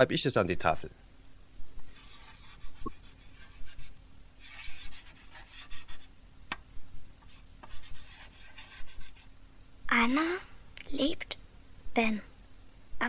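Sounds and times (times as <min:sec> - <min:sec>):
chalk scratching on blackboard: 0:01.7 - 0:06.1, 0:06.7 - 0:09.3
sharp chalk tap: 0:06.5 - 0:06.7.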